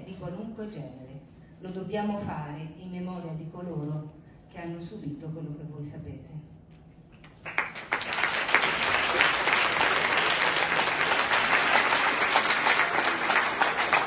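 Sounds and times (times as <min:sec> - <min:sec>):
audience clapping: 0:07.2 - 0:14.0.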